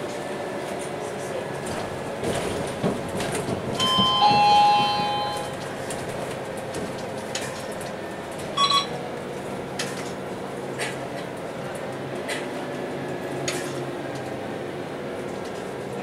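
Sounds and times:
bus engine drone: 0.0s - 16.0s
two-tone bus chime: 3.8s - 5.7s, 8.5s - 9.1s
short double beep: 8.6s - 8.9s.

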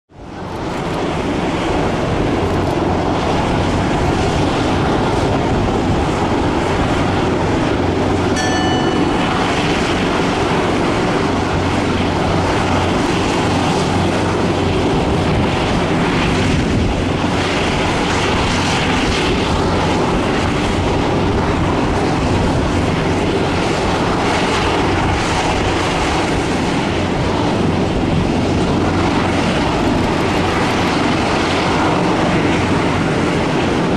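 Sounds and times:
brief high tone: 8.4s - 9.9s.

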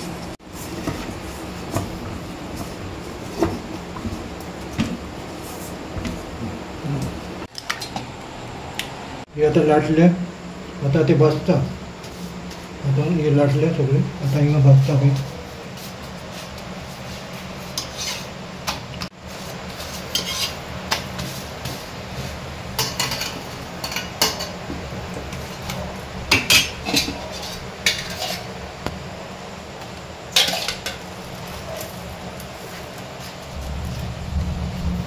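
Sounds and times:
steady low hum: 0.0s - 35.0s
utensils clinking against dishes: 20.0s - 21.2s, 22.8s - 24.6s, 25.3s - 28.6s, 30.3s - 32.0s.

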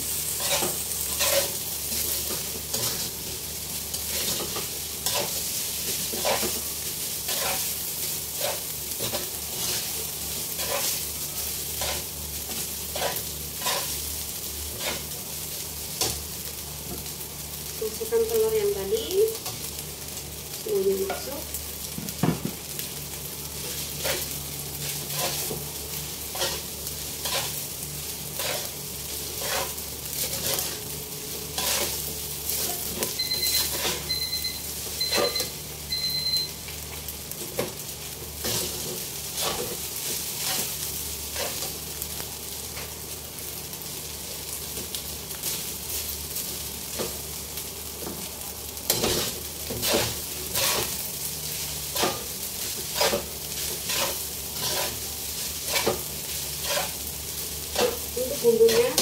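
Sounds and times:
food sizzling: 0.0s - 59.0s
metal spatula scraping a wok: 0.1s - 3.2s, 3.9s - 6.6s, 7.2s - 11.1s, 11.7s - 14.0s, 14.7s - 15.1s, 23.7s - 25.6s, 26.2s - 27.6s, 28.3s - 30.9s, 31.5s - 34.1s, 38.4s - 41.8s, 48.9s - 57.0s, 57.7s - 59.0s
short electronic beeps: 33.2s - 36.6s.

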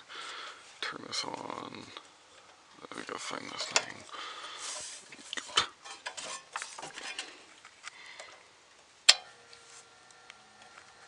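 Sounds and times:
faint steady hum: 0.0s - 11.0s
hands handling heater: 2.4s - 8.4s.

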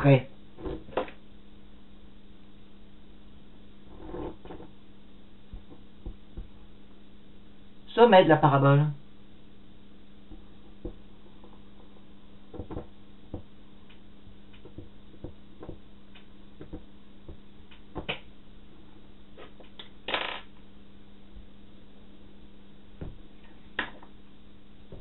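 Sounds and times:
steady low hum: 0.0s - 25.0s
marker pen tapping and scratching: 12.6s - 13.5s.

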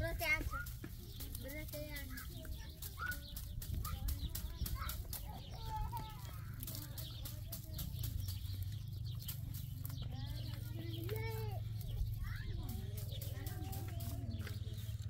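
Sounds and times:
dry grass stalks rustling: 0.0s - 15.0s
low background rumble: 0.0s - 15.0s.

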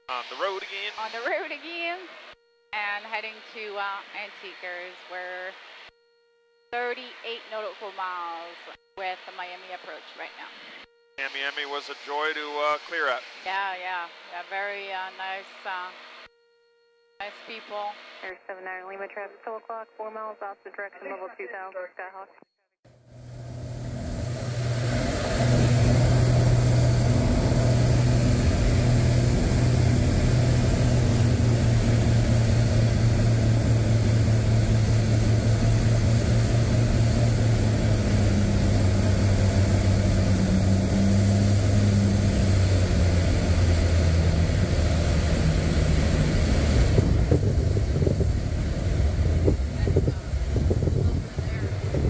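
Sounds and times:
piston aircraft engines: 22.9s - 52.0s.

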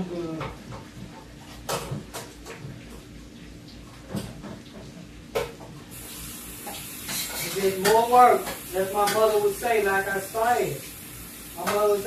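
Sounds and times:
food sizzling in a frying pan: 5.9s - 12.0s.

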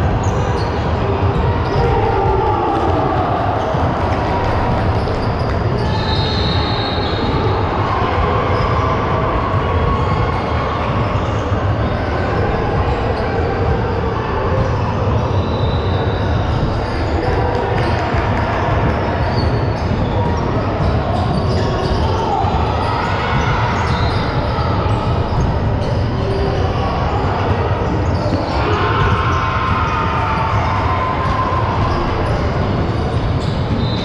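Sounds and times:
din of crowd voices: 0.0s - 34.0s
basketball bouncing on court: 14.5s - 34.0s.

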